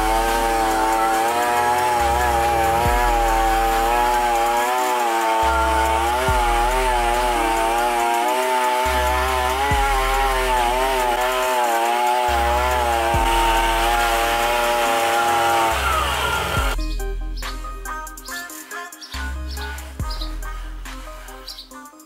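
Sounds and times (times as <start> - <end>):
brush roller scrubbing wood: 0.0 - 16.8
chainsaw engine running fast: 0.0 - 16.8.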